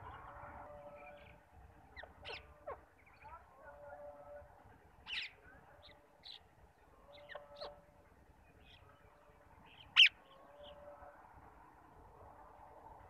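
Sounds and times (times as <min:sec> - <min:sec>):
parakeets calling shrilly: 0:02.0 - 0:03.4, 0:05.0 - 0:05.4, 0:09.8 - 0:10.8.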